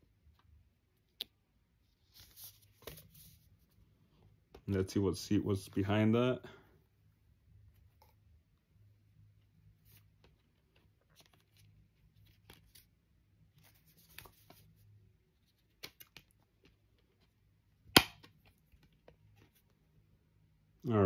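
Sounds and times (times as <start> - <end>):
disc case sharp snap: 17.9 - 18.4.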